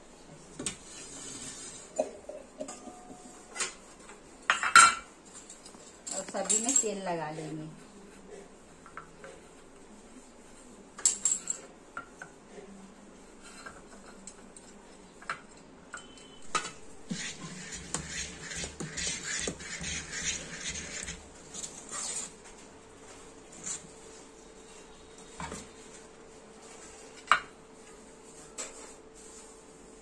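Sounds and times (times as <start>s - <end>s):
spoon scraping batter in pot: 17.0s - 22.3s.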